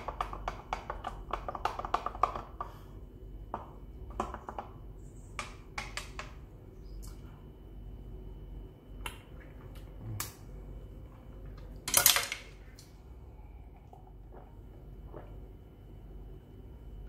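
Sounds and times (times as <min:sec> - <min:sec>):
stir stick tapping plastic cup: 0:00.0 - 0:02.8.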